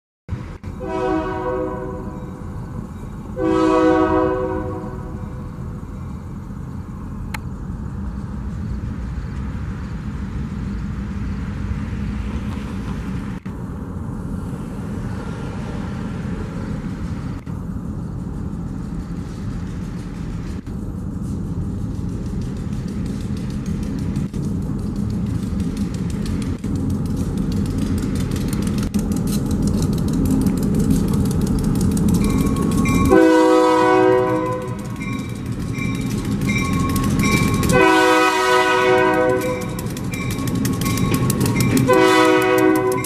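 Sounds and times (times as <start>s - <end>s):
locomotive engine and wheels rumbling: 0.3s - 43.0s
locomotive air horn blasts: 0.7s - 2.4s, 3.4s - 5.4s, 33.1s - 35.0s, 37.6s - 39.8s, 41.9s - 43.0s.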